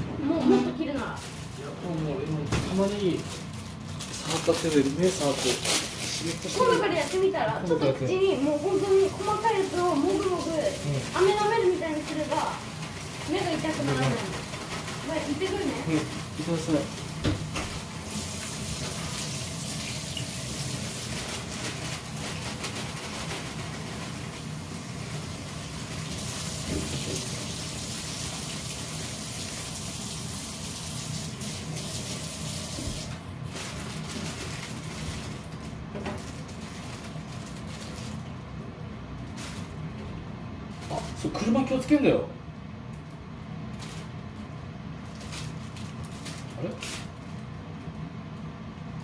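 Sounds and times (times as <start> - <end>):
tap water running into sink: 18.2 - 21.0, 25.8 - 33.2.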